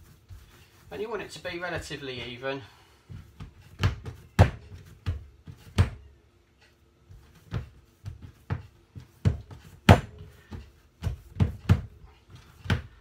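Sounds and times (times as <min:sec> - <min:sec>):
hands thumping dough on wooden table: 0:03.4 - 0:06.0, 0:07.4 - 0:12.0.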